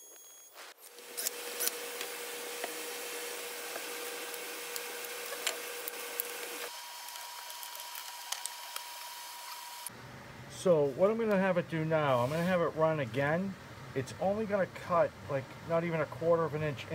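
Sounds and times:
shop vacuum running: 0:00.5 - 0:11.1.

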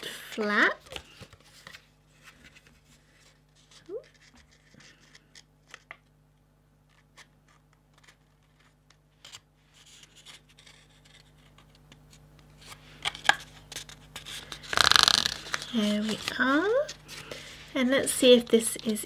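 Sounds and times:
card crackling and tapping: 0:13.0 - 0:16.4.

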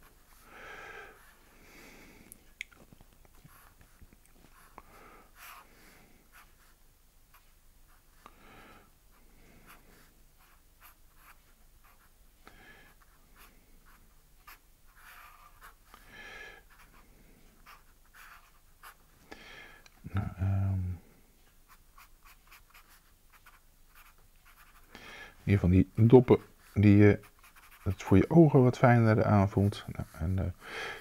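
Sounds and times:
pen scratching on paper: 0:09.6 - 0:12.1, 0:13.0 - 0:15.9, 0:17.6 - 0:19.0, 0:21.7 - 0:24.9, 0:26.5 - 0:28.0.

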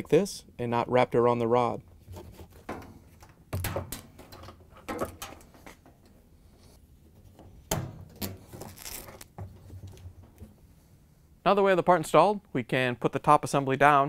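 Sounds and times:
gloved hands rustling: 0:08.4 - 0:09.4.

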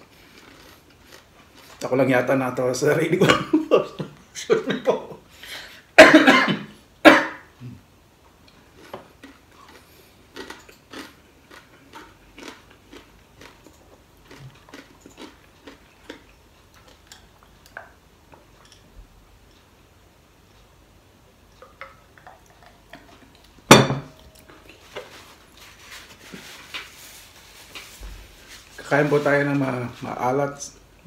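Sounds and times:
faint chewing and mouth sounds: 0:00.0 - 0:02.6, 0:07.6 - 0:31.0
man coughing loudly: 0:06.0 - 0:07.5.

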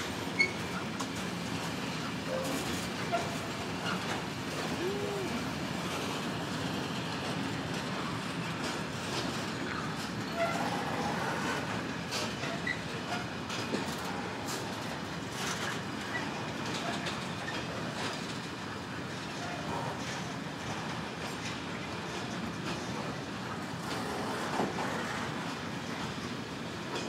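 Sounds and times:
train wheels clickety-clack: 0:00.0 - 0:27.0
wheel squeals: 0:00.3 - 0:01.0.

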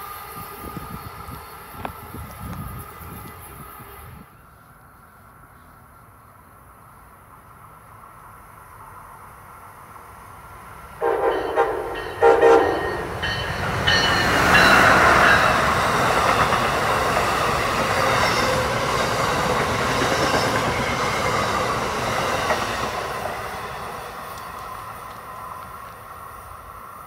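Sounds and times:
train passing at speed: 0:00.0 - 0:27.0
train horn blasts: 0:11.0 - 0:15.4.

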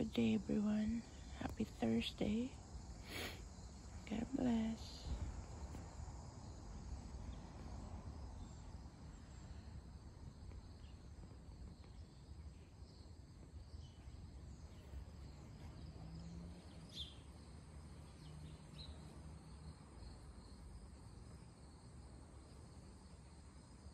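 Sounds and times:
low outdoor rumble: 0:00.0 - 0:22.3
crickets trilling: 0:00.0 - 0:23.9
bird chirps: 0:16.7 - 0:17.3.

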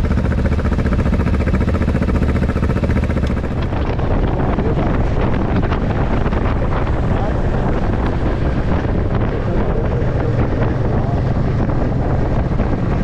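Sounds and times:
motorcycle engine at low revs: 0:00.0 - 0:13.0
wind noise on microphone: 0:00.0 - 0:13.0.

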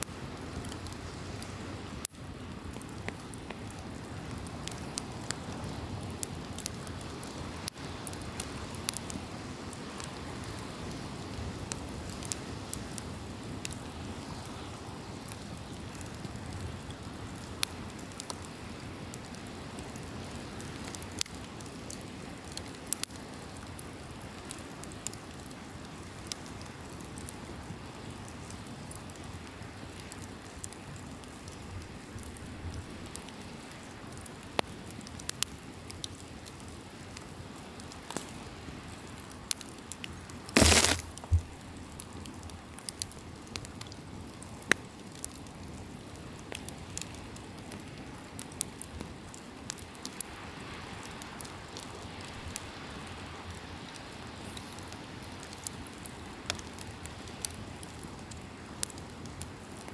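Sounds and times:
campfire crackling: 0:00.0 - 0:59.9
fire popping: 0:02.2 - 0:27.3, 0:31.5 - 0:50.4.

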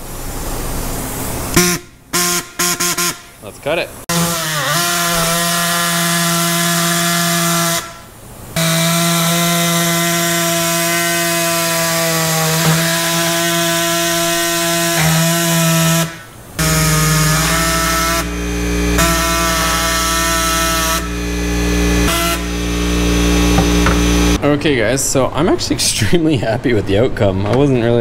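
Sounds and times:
air saw cutting plastic: 0:01.5 - 0:03.3, 0:04.1 - 0:24.4.

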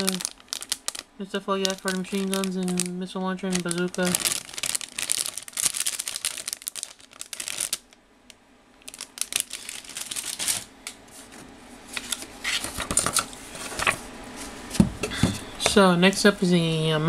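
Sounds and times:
plastic parts rustling and clicking: 0:00.0 - 0:01.0, 0:01.6 - 0:02.9, 0:03.5 - 0:07.9, 0:12.0 - 0:14.0.

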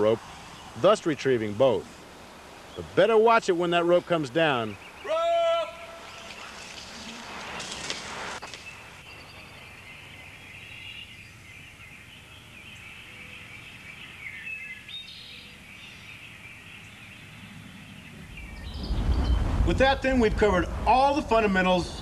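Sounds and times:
steady outdoor hiss: 0:00.0 - 0:22.0
faint bird chirps: 0:08.4 - 0:19.6.

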